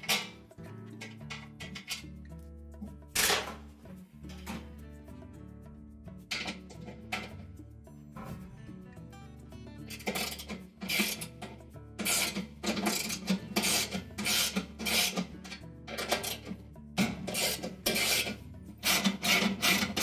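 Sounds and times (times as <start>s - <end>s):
socket ratchet rasping: 9.9s - 20.0s.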